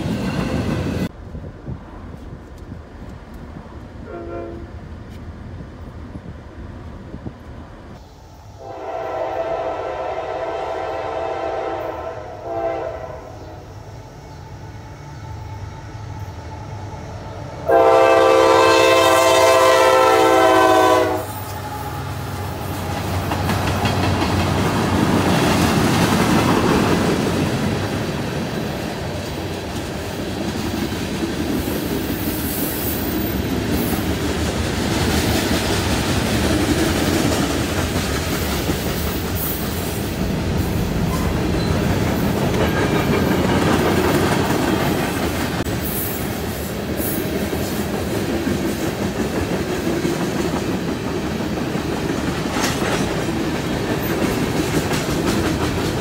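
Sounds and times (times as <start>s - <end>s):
freight train rumbling past: 0.0s - 56.0s
diesel locomotive horn blasts: 4.0s - 4.8s, 8.6s - 13.7s, 17.6s - 22.8s.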